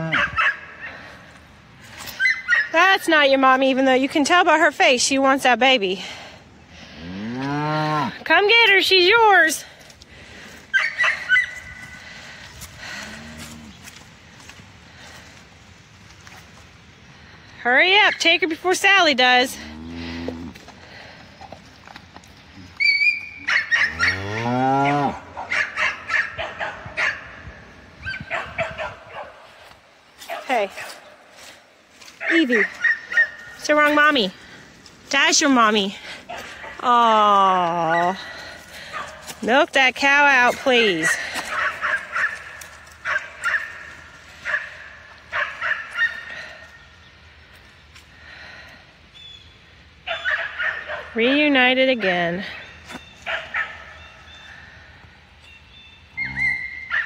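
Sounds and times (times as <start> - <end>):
high-pitched animal yips: 2.1 - 2.8, 10.7 - 11.8, 22.8 - 27.2, 56.2 - 57.0
cow mooing: 19.5 - 20.6, 23.8 - 25.3, 56.2 - 56.8.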